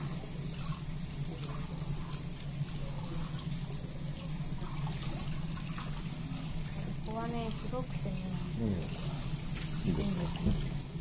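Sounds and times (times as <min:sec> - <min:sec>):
tap running into steel sink: 0:10.3 - 0:10.8.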